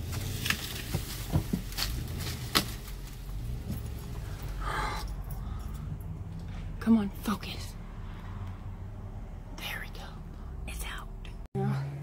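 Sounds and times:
sharp cracks and knocks: 0:00.0 - 0:03.3
engine running under load: 0:00.0 - 0:09.6.

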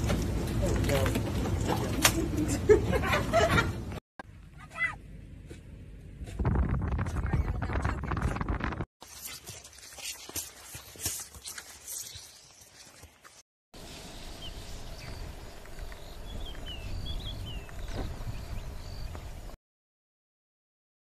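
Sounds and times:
low rumble: 0:05.1 - 0:08.9
horse hooves clopping on dirt: 0:06.9 - 0:13.4, 0:15.0 - 0:19.4
bird chirps: 0:14.0 - 0:19.5.

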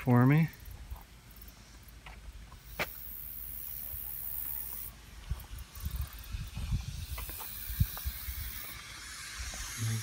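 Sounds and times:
high-pitched hiss: 0:00.0 - 0:10.0.

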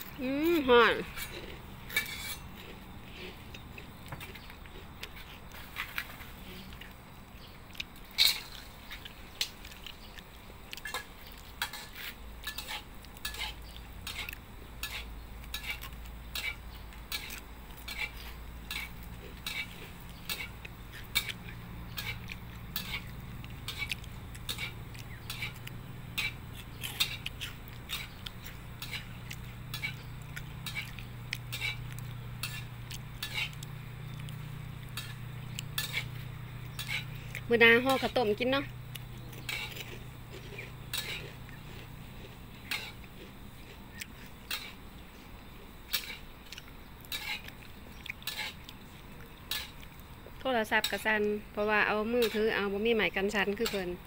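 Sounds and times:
low steady hum: 0:00.0 - 0:54.0
metal spatula scraping a wok: 0:01.0 - 0:03.4, 0:08.1 - 0:08.7, 0:10.8 - 0:33.7, 0:34.4 - 0:38.4, 0:39.4 - 0:43.0, 0:44.2 - 0:44.8, 0:45.9 - 0:46.3, 0:47.1 - 0:47.5, 0:48.2 - 0:48.6, 0:49.5 - 0:49.8, 0:52.2 - 0:52.5.

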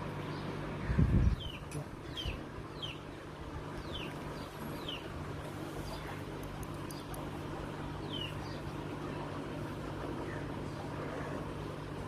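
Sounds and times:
steady low hum: 0:00.0 - 0:12.0
bird chirping: 0:00.2 - 0:07.4, 0:08.0 - 0:08.9.

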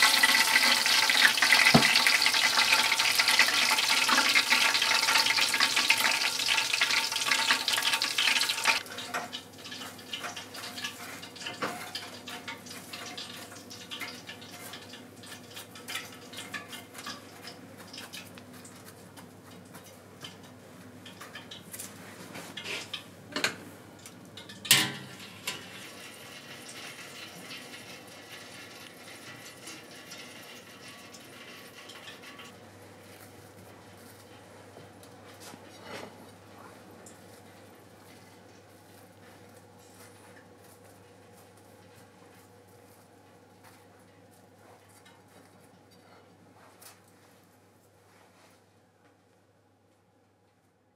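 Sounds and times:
oil sizzling loudly: 0:00.0 - 0:18.2, 0:25.0 - 0:32.5.

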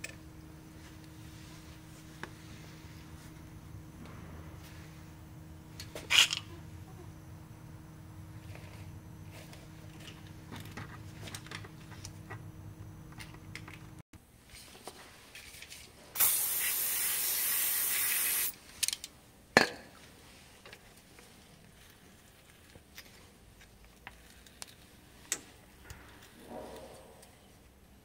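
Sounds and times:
low steady hum: 0:00.0 - 0:16.2
spray hissing: 0:16.2 - 0:18.6.

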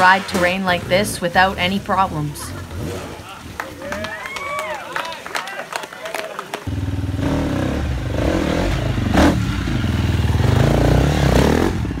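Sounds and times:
dirt bike engine running: 0:06.7 - 0:12.0.

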